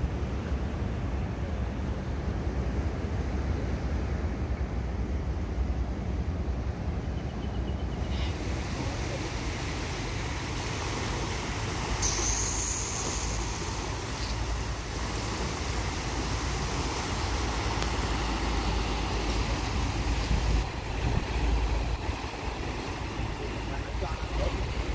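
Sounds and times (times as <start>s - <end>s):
wind rumbling on microphone: 0.0s - 24.9s
small waves washing over rocks: 8.1s - 24.9s
thin high tone: 11.8s - 14.6s.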